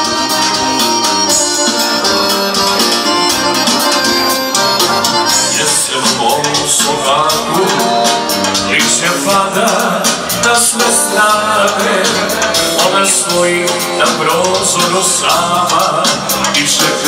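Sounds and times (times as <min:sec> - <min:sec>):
amplified backing music: 0:00.0 - 0:17.0
man singing into a microphone: 0:05.2 - 0:17.0.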